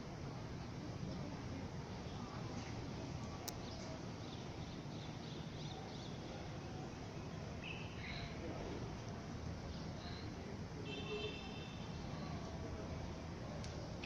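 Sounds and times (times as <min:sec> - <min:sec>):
faint bird chirps: 0:07.6 - 0:08.4
faint click: 0:13.6 - 0:13.9.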